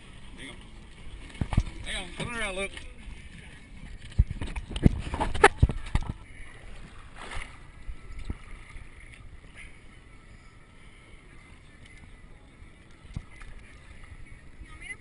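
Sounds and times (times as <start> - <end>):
wind and water hiss: 0.0 - 15.0.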